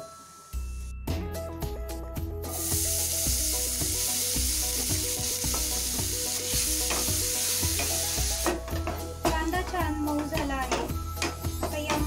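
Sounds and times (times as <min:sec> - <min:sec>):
onions sizzling in hot oil: 0:02.4 - 0:08.9.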